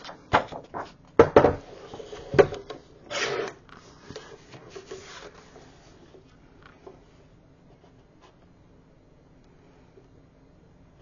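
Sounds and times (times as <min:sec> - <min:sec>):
paper rustling: 0:00.0 - 0:01.0, 0:03.1 - 0:06.4
rasping paper slide: 0:03.1 - 0:06.1.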